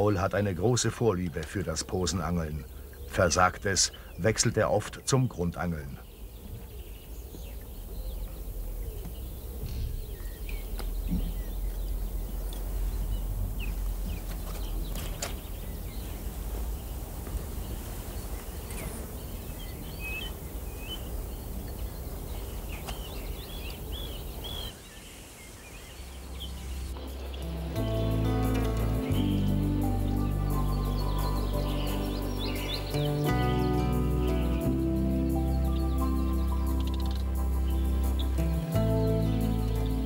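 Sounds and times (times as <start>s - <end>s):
small birds chirping: 0.0s - 40.0s
steady low rumble: 6.4s - 18.5s.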